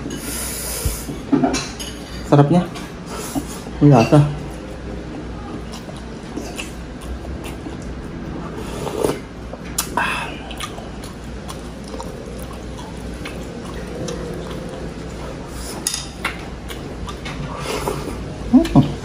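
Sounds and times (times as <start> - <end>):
steady low hum: 0.0 - 19.0
person chewing: 5.0 - 19.0
mouth clicks and smacks: 9.7 - 14.2.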